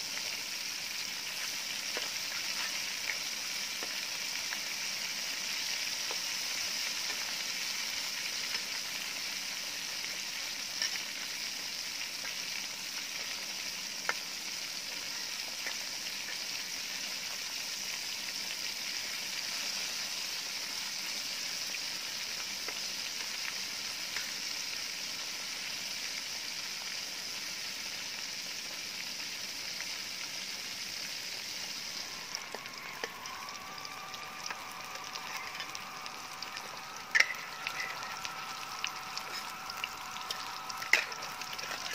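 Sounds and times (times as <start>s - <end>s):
fish deep-frying in oil: 0.0s - 41.9s.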